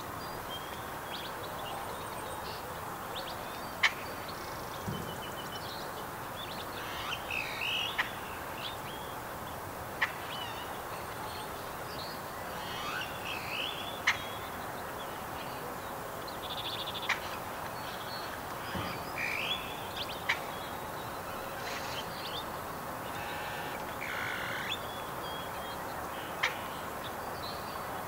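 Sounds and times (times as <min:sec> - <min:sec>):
steady background noise: 0:00.0 - 0:28.0.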